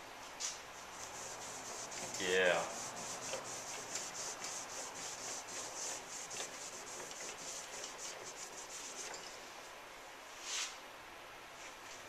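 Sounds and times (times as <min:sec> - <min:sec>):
cloth rag rubbing wood: 0:00.8 - 0:09.3.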